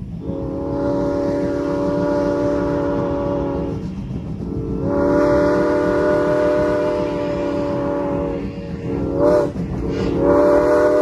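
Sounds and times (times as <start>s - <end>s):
low rumble of train: 0.0s - 11.0s
steam locomotive chime whistle: 0.0s - 11.0s.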